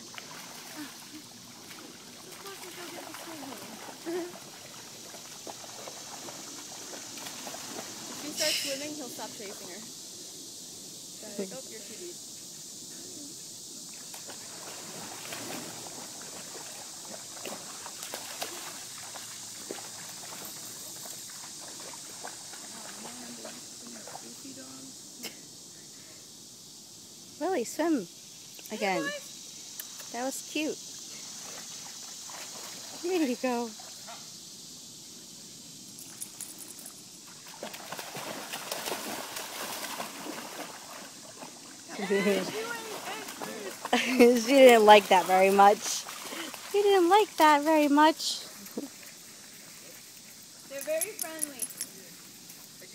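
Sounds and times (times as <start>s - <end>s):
dogs splashing in water: 0.0s - 8.5s, 14.1s - 24.3s, 37.3s - 49.9s
trickle of flowing water: 0.0s - 26.1s, 27.5s - 34.6s, 35.7s - 52.9s.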